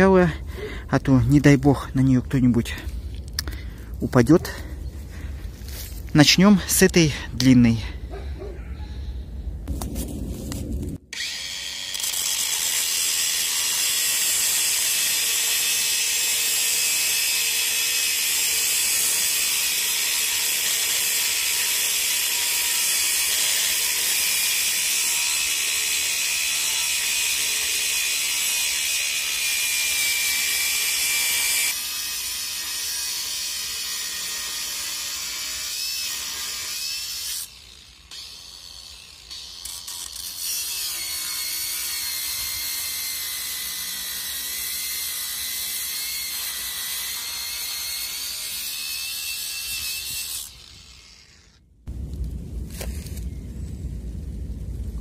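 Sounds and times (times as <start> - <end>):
angle grinder cutting steel: 11.0 - 51.7.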